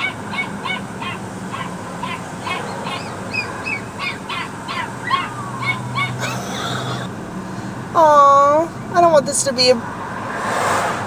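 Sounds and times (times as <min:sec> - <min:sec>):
puppy crying: 0:00.0 - 0:07.1.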